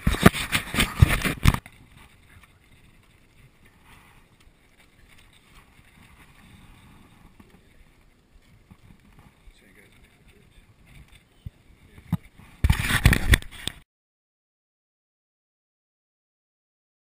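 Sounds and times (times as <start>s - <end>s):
rubbing and knocking on camera: 0.0s - 4.2s, 11.9s - 13.8s
faint handling sounds: 0.0s - 13.8s.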